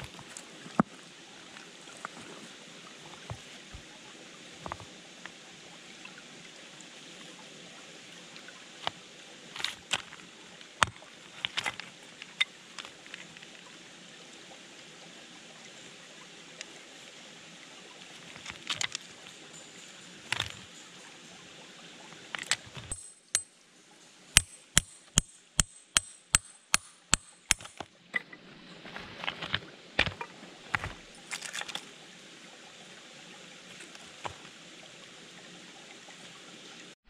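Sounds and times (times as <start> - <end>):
babbling stream: 0.0 - 37.0
rock cracking: 9.6 - 10.2, 10.8 - 13.3, 28.9 - 31.8
hammer striking rock: 22.4 - 23.5, 24.4 - 27.9, 30.0 - 31.1.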